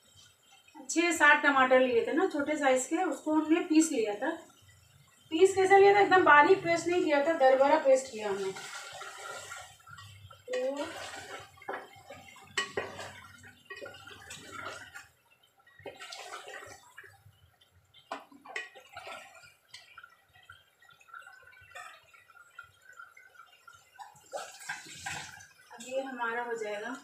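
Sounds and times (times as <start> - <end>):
curry bubbling and spluttering: 0.0 - 27.0
spoon scraping pot: 9.4 - 15.1.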